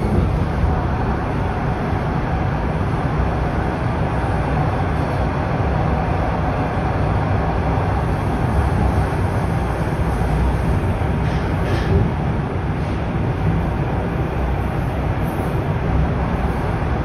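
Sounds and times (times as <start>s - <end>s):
subway car rumble: 0.0s - 17.0s.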